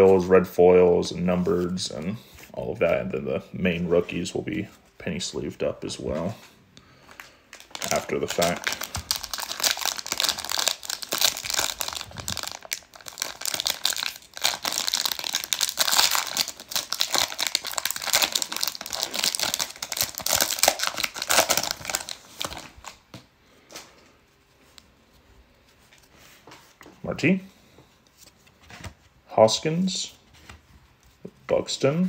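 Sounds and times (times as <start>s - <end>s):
plastic wrapper tearing and crinkling: 7.5s - 23.1s.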